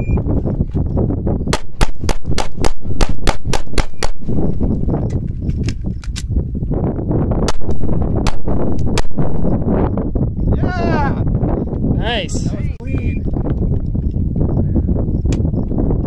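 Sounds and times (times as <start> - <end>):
pistol shots: 1.5 - 4.4, 7.5 - 9.4.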